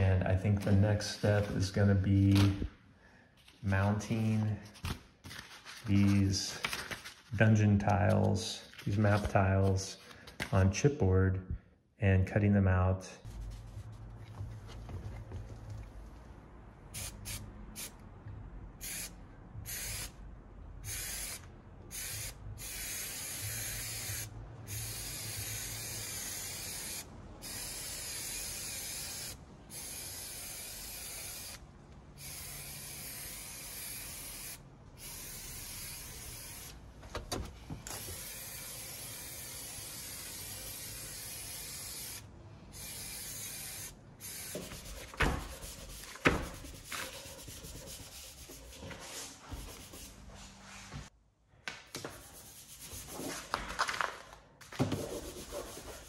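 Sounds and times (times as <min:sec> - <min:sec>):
paper rustling: 0:04.6 - 0:10.6, 0:44.7 - 0:47.9, 0:53.0 - 0:55.7
aerosol spray hissing: 0:42.8 - 0:45.0.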